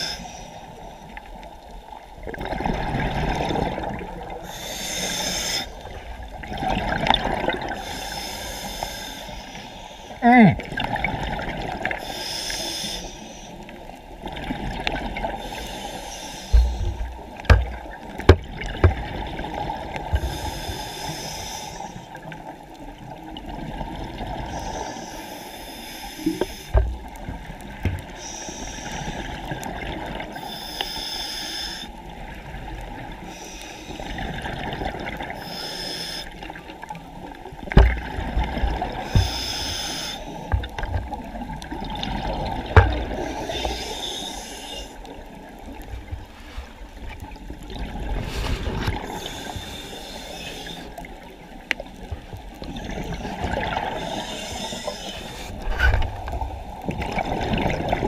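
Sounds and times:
water sloshing and trickling: 0:00.7 - 0:04.6, 0:05.6 - 0:08.0, 0:10.7 - 0:12.1, 0:13.4 - 0:20.8, 0:32.0 - 0:35.6, 0:36.4 - 0:49.7, 0:50.6 - 0:58.0
bursts of high hiss: 0:39.1 - 0:40.4.

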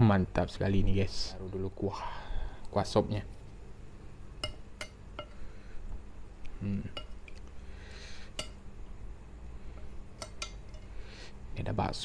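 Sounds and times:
metal spoon clinking glass bowl: 0:04.4 - 0:05.4, 0:10.2 - 0:10.9.

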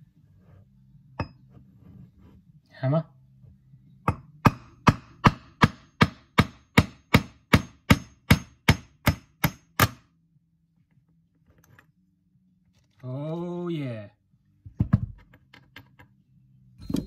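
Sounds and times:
hammer striking steel rod: 0:04.0 - 0:10.0.

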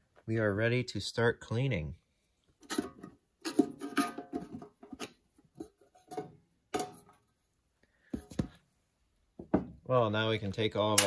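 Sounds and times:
metal lid scraping and rattling: 0:02.6 - 0:07.1.

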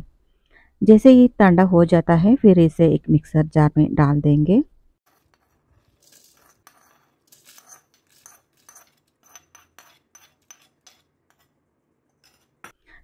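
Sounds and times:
steel spoon scraping in a pan: 0:05.0 - 0:12.9.

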